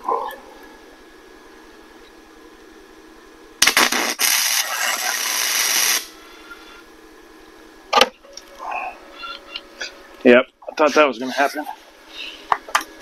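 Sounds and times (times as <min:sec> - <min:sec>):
welder arc crackling: 0:03.6 - 0:06.2.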